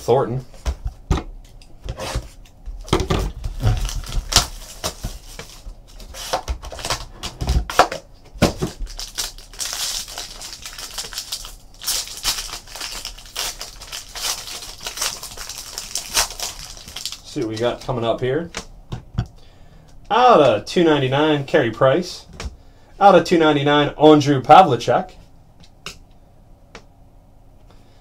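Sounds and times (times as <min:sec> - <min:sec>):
foil wrapper crinkling: 0:03.4 - 0:07.1, 0:08.4 - 0:17.8.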